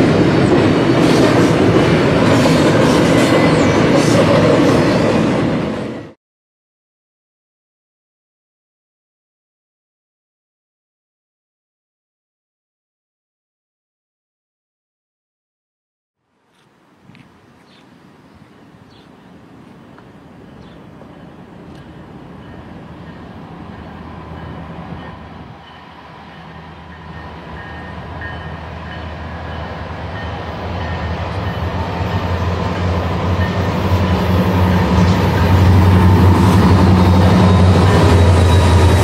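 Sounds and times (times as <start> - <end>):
diesel locomotive engine drone: 0.0 - 6.2, 16.7 - 39.0.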